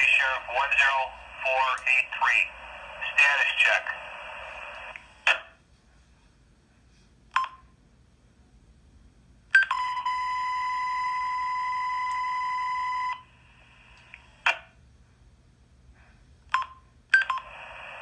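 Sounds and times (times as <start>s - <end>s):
radio squelch static: 0.0s - 5.5s, 17.4s - 18.0s.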